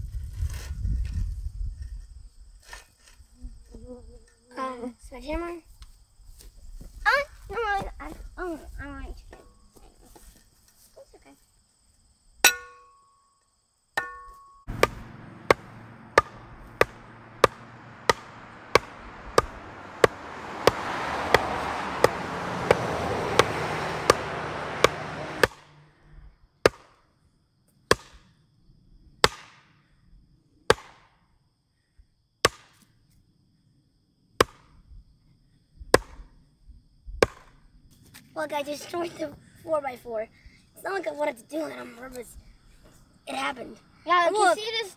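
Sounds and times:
sledgehammer striking post: 0:12.4 - 0:13.0, 0:14.0 - 0:25.7, 0:26.6 - 0:27.0, 0:27.9 - 0:28.2, 0:29.2 - 0:29.6, 0:30.7 - 0:31.1, 0:35.9 - 0:36.2, 0:37.2 - 0:37.6.

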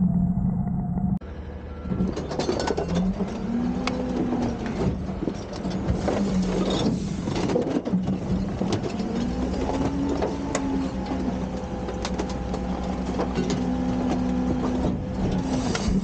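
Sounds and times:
garbage truck engine running: 0:00.0 - 0:16.0
trash bins knocking and clattering: 0:01.9 - 0:16.0.

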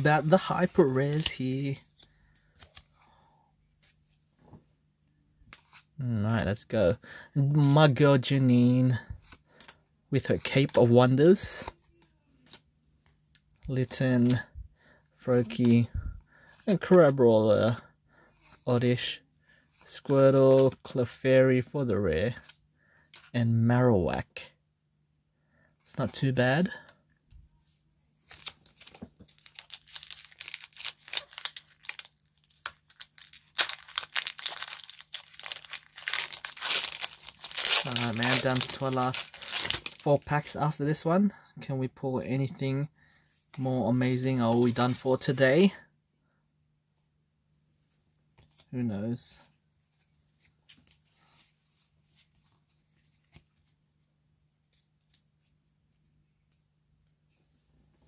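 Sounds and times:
cards being handled: 0:00.0 - 0:03.0, 0:09.2 - 0:14.5, 0:28.2 - 0:41.0, 0:43.5 - 0:45.4
foil wrapper crinkling and tearing: 0:28.3 - 0:40.1.

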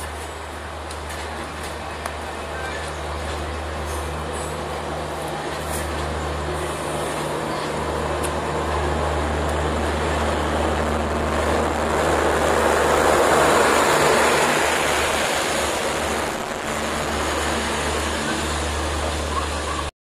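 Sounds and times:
train wheels clattering on rails: 0:00.0 - 0:10.5
low hum: 0:02.9 - 0:19.9.

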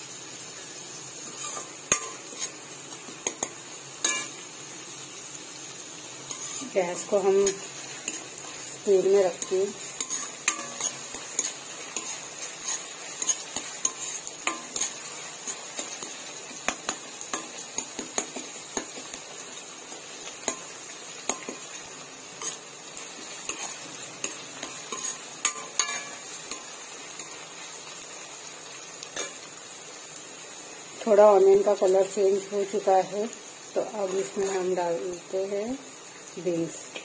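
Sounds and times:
onions sizzling in hot oil: 0:00.0 - 0:37.0
metal ladle scraping pan: 0:01.3 - 0:02.6, 0:03.4 - 0:04.4, 0:06.3 - 0:08.7, 0:09.3 - 0:15.6, 0:23.5 - 0:26.2.

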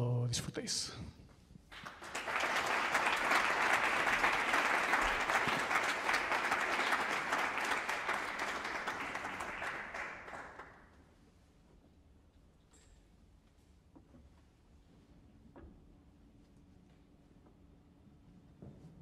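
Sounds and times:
audience applauding: 0:01.7 - 0:10.8.

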